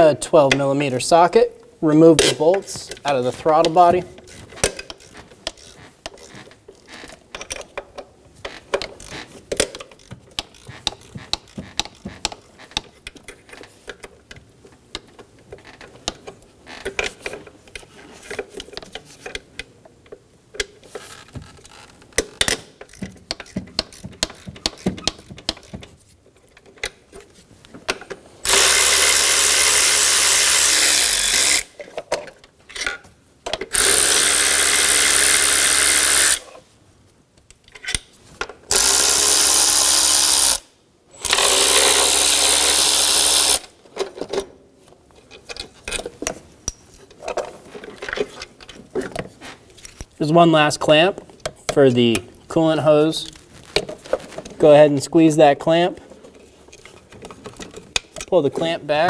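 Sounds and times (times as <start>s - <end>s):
hand ratchet clicking: 2.9s - 7.8s, 8.7s - 14.1s, 21.7s - 26.0s, 28.4s - 31.8s, 33.7s - 36.5s, 38.7s - 43.7s
cordless power tool spinning: 28.4s - 31.7s, 33.7s - 36.5s, 38.7s - 43.7s.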